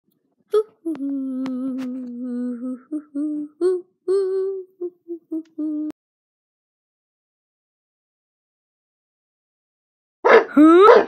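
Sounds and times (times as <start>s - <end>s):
person humming a tune: 0.6s - 6.0s.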